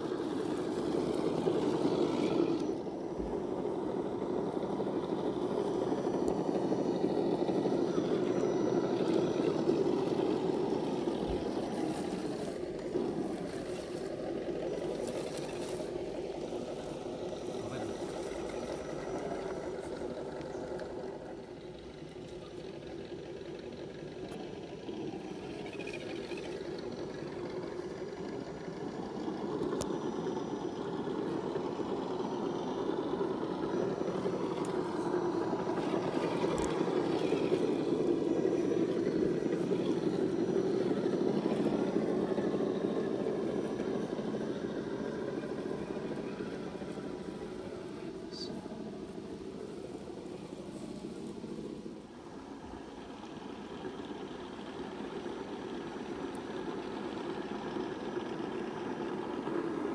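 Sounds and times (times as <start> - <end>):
rc truck motor running: 0.0 - 59.9.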